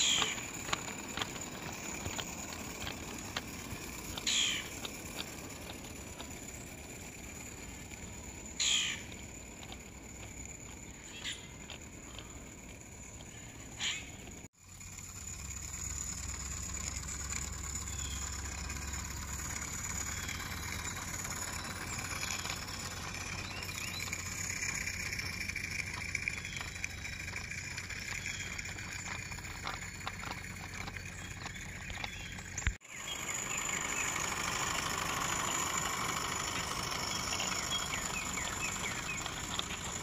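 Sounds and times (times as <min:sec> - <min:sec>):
small birds chirping: 0:00.0 - 0:14.5, 0:17.0 - 0:40.0
crow cawing: 0:04.3 - 0:04.7, 0:08.6 - 0:09.1, 0:13.8 - 0:14.1.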